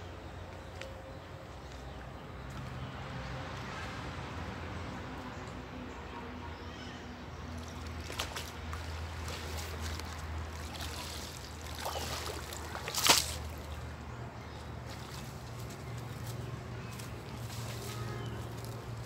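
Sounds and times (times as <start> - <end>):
water sloshing and splashing: 7.6 - 14.0, 14.6 - 19.0.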